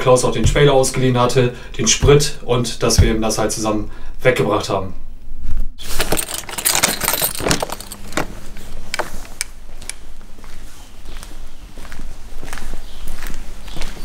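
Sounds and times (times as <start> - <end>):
jingling and clicking: 6.0 - 9.5
footsteps on concrete: 8.0 - 14.0.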